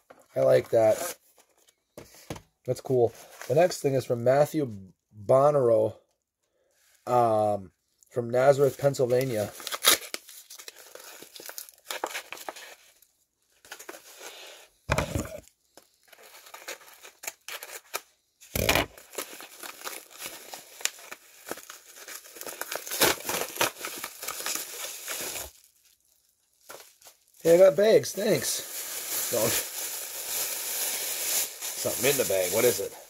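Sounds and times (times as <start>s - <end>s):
plastic bag crinkling: 18.6s - 33.0s
paper mailer crinkling: 26.7s - 33.0s.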